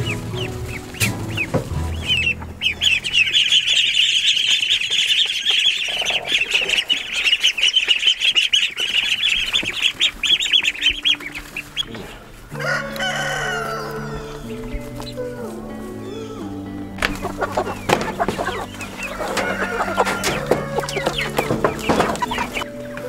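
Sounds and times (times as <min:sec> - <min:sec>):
music: 0:00.0 - 0:05.0, 0:09.6 - 0:23.0
ducklings peeping: 0:00.0 - 0:23.0.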